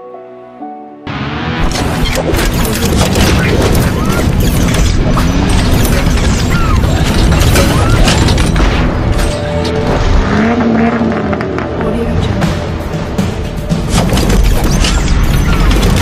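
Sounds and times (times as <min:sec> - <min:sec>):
music: 0:00.0 - 0:16.0
car engine: 0:01.1 - 0:16.0
engine-like hum: 0:01.1 - 0:16.0.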